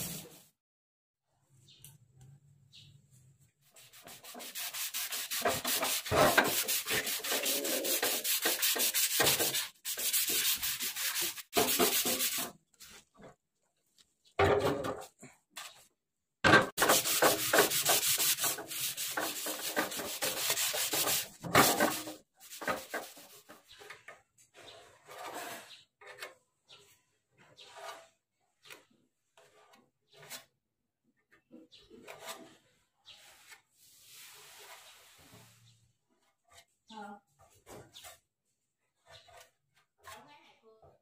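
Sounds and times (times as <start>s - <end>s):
sandpaper rubbing on metal: 3.6s - 13.0s, 16.8s - 23.7s.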